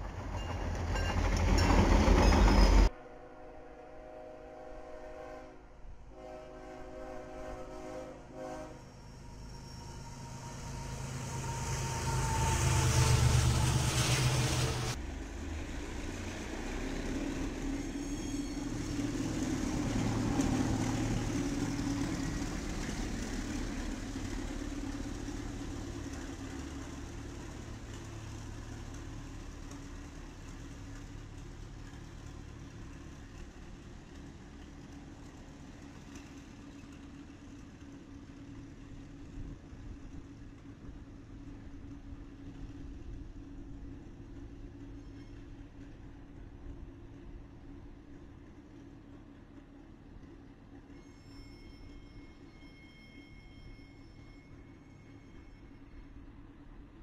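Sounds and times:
freight train locomotives passing: 0.0 - 57.0
low diesel engine hum: 7.3 - 50.7.

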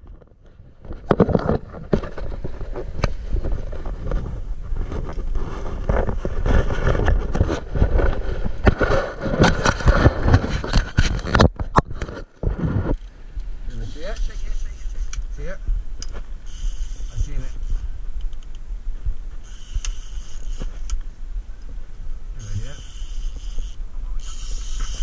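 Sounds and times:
low rumble: 12.2 - 16.5.

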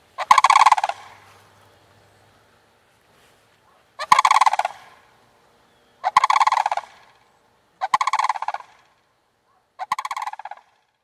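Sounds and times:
cranes calling: 0.0 - 1.3, 3.7 - 5.1, 5.7 - 10.8.

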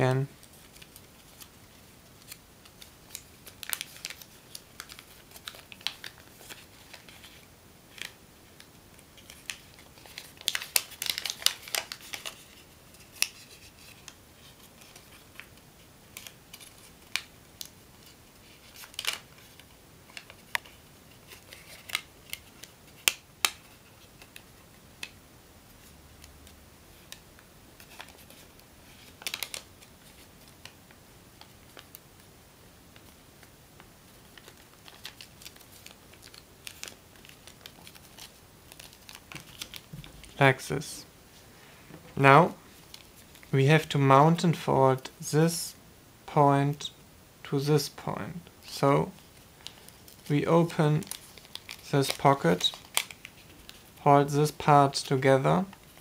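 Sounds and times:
paper crinkling and rustling: 2.2 - 24.4, 27.8 - 30.8, 34.1 - 40.4, 49.1 - 54.0.

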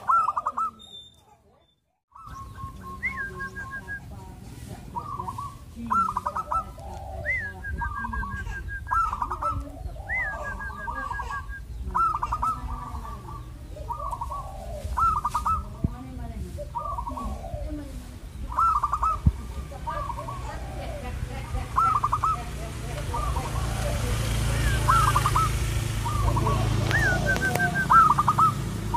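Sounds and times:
dove cooing: 0.0 - 1.4, 2.1 - 28.9
higher gliding bird call: 5.0 - 15.8, 23.1 - 28.7.

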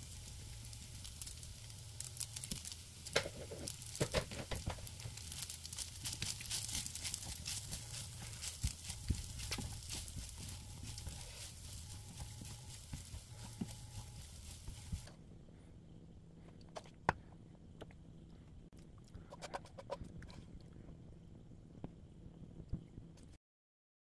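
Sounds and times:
frying hiss: 0.0 - 15.2
spatula scraping frying pan: 2.6 - 15.1.

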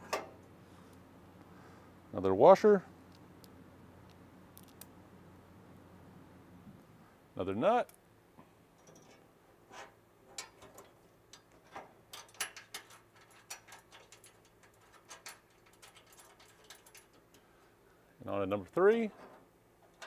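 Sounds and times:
metal nut clicking on bolt: 10.4 - 17.4.

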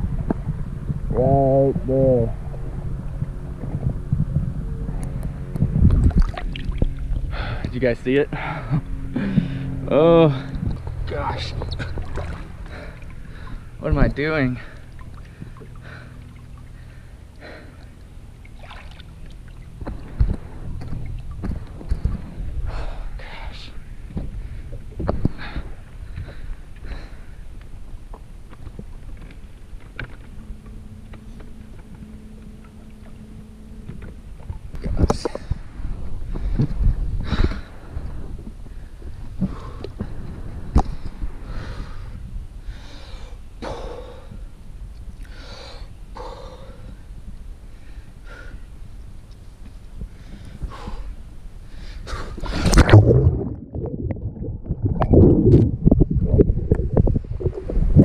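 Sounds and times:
wind rumbling on microphone: 0.0 - 45.2, 46.0 - 58.0
man breathing sharply: 7.3 - 7.7, 8.3 - 9.8, 22.6 - 24.8
electric motor hum: 29.4 - 34.8
loud splash into water: 52.6 - 55.3
knocks underwater: 52.6 - 58.0.

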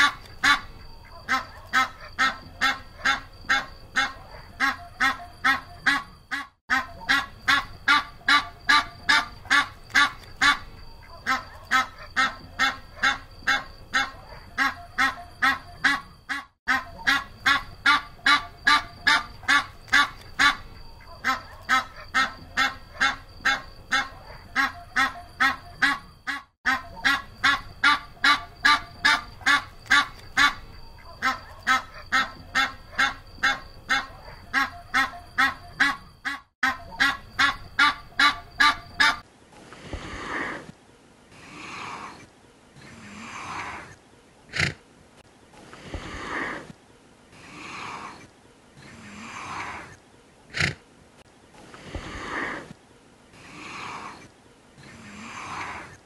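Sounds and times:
goose honking: 0.0 - 39.2
soft breathy animal sound: 39.6 - 44.8, 45.6 - 50.8, 51.6 - 56.0.

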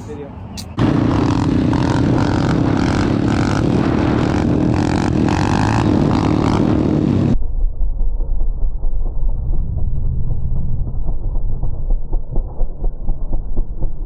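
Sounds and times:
pit bike engines at high revs: 0.7 - 7.4
wind noise on microphone: 0.7 - 13.9.

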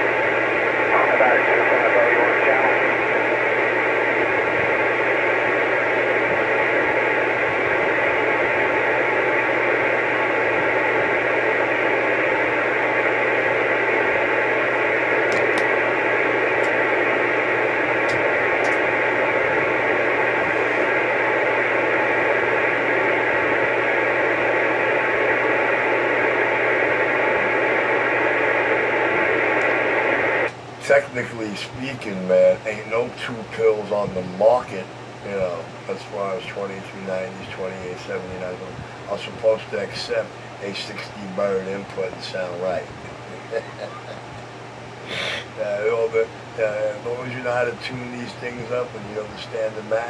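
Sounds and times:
low hum: 0.0 - 30.5
radio static hiss: 0.0 - 50.0.

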